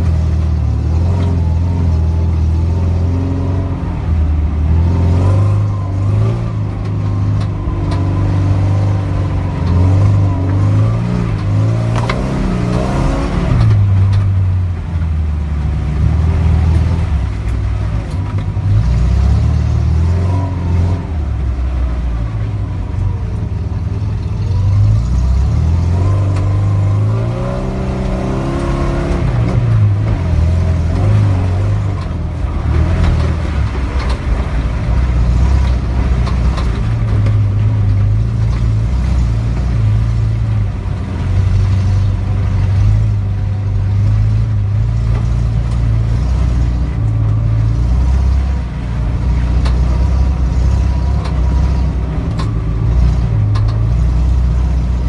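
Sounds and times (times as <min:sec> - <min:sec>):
off-road engine revving: 0:00.0 - 0:55.0.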